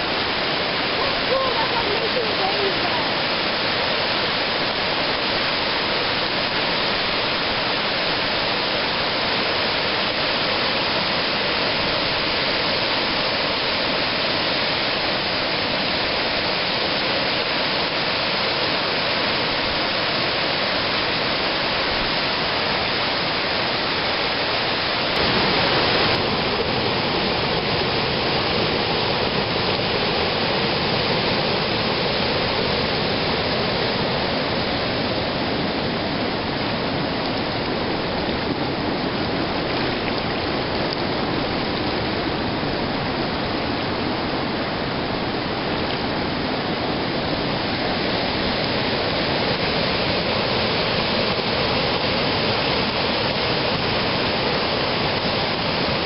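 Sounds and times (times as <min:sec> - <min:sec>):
river rapids rushing over rocks: 0:00.0 - 0:56.0.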